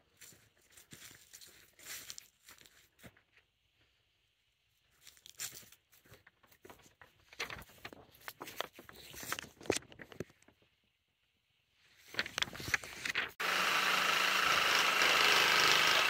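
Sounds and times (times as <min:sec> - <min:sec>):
footsteps crunching on dry leaves: 0:00.1 - 0:03.1, 0:05.0 - 0:06.2.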